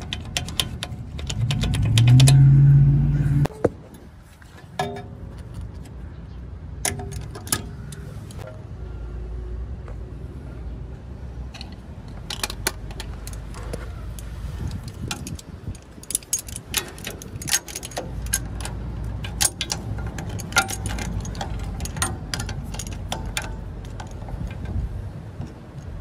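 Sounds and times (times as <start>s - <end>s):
pliers and metal parts clinking: 0.0s - 2.8s, 6.8s - 8.6s, 11.5s - 26.0s
steady low rumble: 0.8s - 4.2s.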